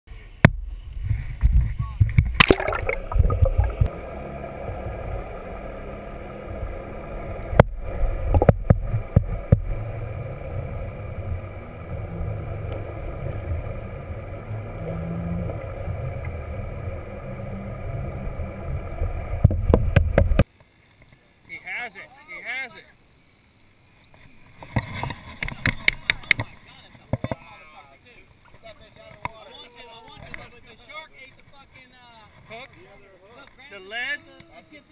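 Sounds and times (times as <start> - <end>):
boat motor heard underwater: 0.5 - 20.4
water splashing: 2.0 - 20.5
steady tones: 2.4 - 20.4.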